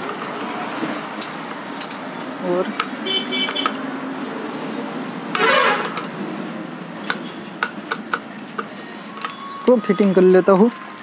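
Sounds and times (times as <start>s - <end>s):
vehicle horn honking: 3.0s - 3.8s.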